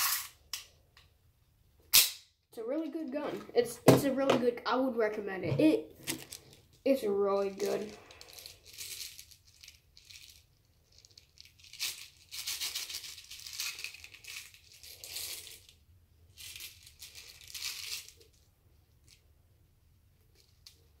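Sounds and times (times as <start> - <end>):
plastic pellets rattling in pack: 7.4 - 19.2.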